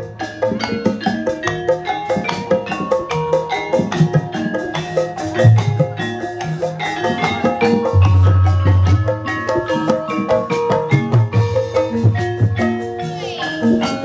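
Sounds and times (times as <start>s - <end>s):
gamelan ensemble playing: 0.0s - 14.0s
hand drum strokes: 0.0s - 14.0s.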